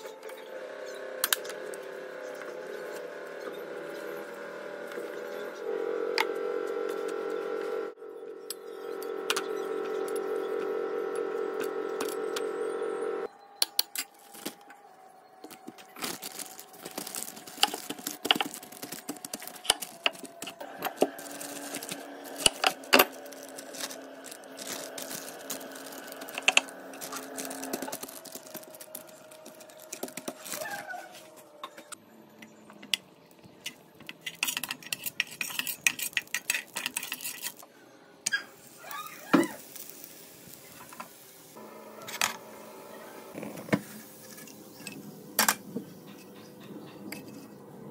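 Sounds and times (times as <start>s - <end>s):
plastic sheeting crinkling: 15.5s - 31.4s
utensils and pan clinking: 33.6s - 37.6s.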